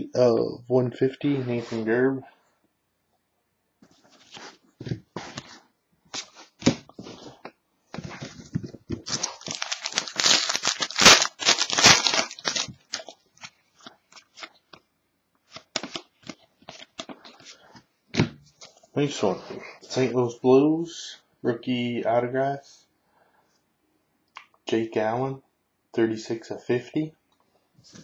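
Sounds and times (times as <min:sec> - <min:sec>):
foil pack crinkling and tearing: 0:09.0 - 0:14.6.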